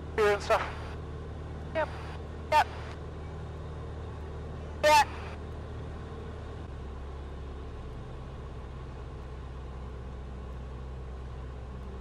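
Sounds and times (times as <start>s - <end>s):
light aircraft engine drone: 0.0s - 12.0s.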